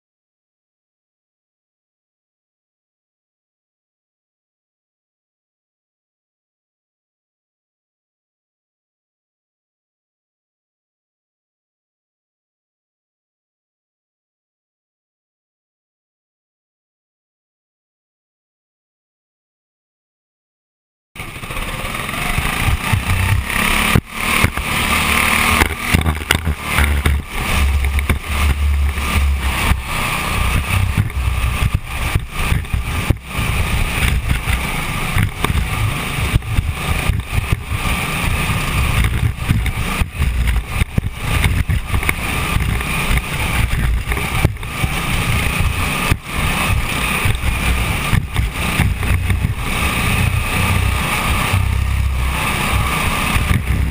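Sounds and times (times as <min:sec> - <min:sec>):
sprint car engine rumbling: 0:21.2 - 0:53.9.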